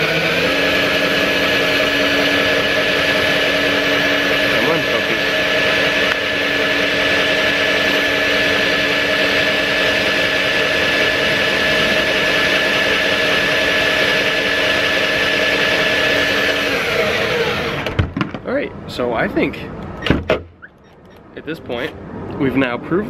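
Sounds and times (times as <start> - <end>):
cordless drill whining: 0.0 - 18.0.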